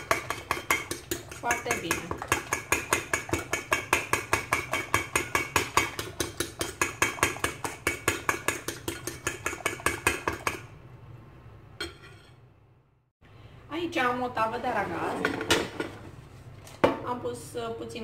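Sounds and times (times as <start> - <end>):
fork beating eggs in bowl: 0.0 - 10.7.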